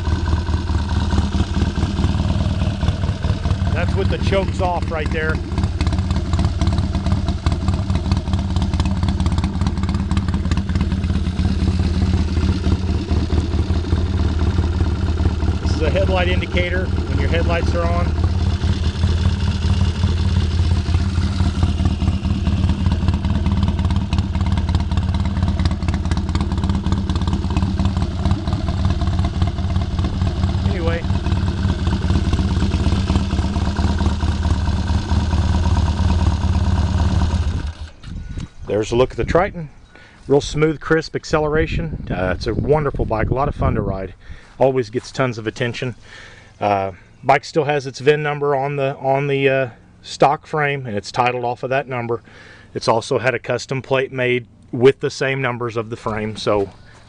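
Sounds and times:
motorcycle engine idling: 0.0 - 40.2, 45.4 - 47.2, 55.6 - 57.0.

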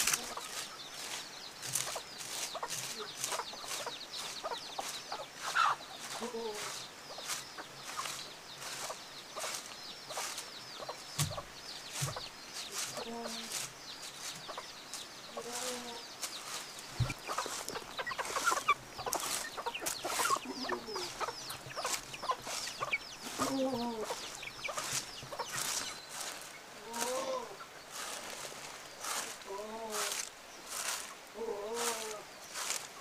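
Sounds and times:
chickens clucking: 0.0 - 33.0.

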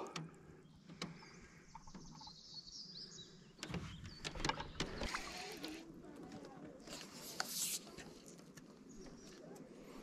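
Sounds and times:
bird singing: 0.0 - 5.7.

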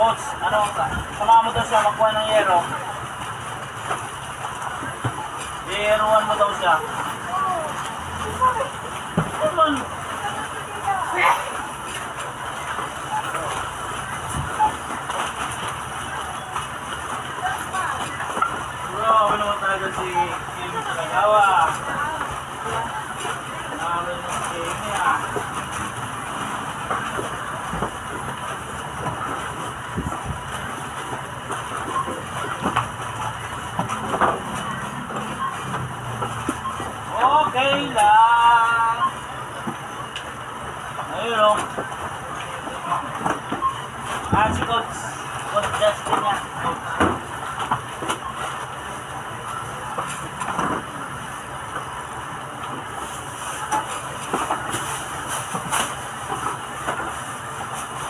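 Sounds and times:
busy shop counter din: 0.0 - 58.0
goods knocking and rustling: 11.5 - 38.1, 39.5 - 58.0.

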